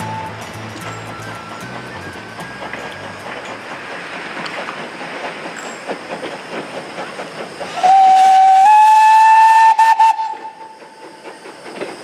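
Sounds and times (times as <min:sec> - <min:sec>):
steam locomotive whistle: 0:00.0 - 0:03.5, 0:07.7 - 0:10.8
moving train running noise: 0:00.0 - 0:12.0.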